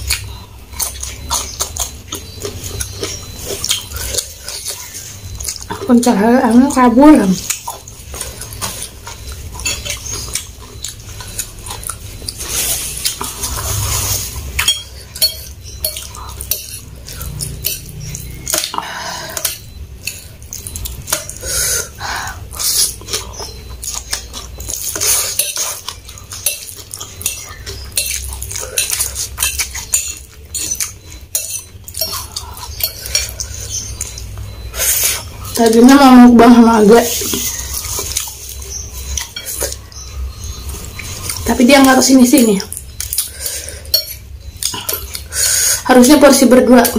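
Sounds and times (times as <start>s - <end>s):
close chewing: 0.0s - 35.8s, 37.0s - 41.6s, 42.4s - 45.9s
metal fork scraping ceramic bowl: 8.4s - 10.5s, 25.0s - 34.2s.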